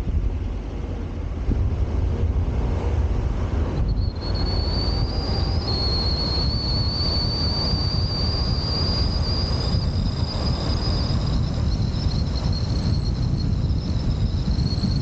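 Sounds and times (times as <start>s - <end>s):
wind and road rumble: 0.0s - 15.0s
high-pitched whistle: 3.8s - 15.0s.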